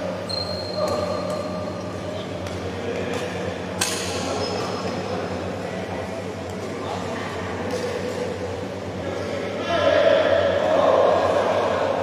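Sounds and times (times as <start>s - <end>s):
shoes squeaking on floor: 0.3s - 1.2s
rackets hitting shuttlecock: 2.4s - 5.0s.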